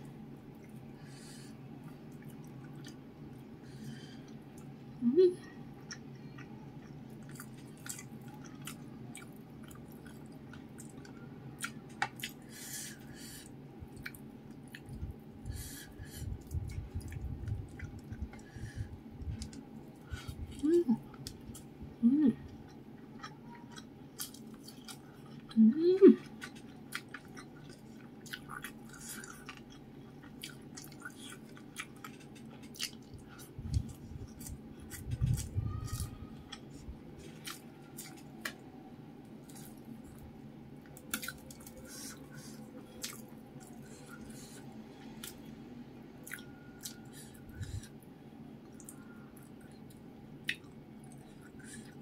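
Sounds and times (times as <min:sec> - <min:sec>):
person chewing with wet mouth clicks: 0:05.8 - 0:12.4, 0:13.9 - 0:15.1, 0:16.4 - 0:18.5, 0:26.3 - 0:38.6, 0:40.9 - 0:45.4, 0:46.2 - 0:48.0, 0:48.6 - 0:52.0
person humming mm: 0:22.0 - 0:22.5, 0:25.5 - 0:26.3.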